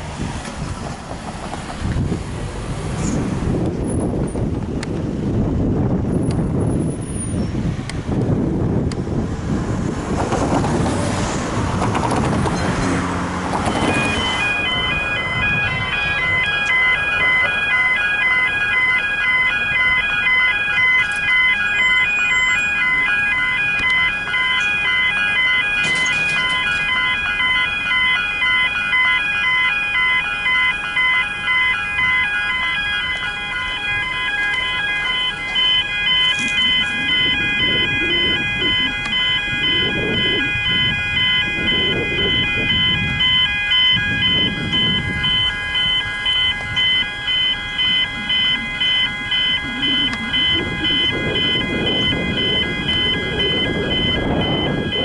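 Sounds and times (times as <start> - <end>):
level crossing bell ringing: 13.7 - 55.0.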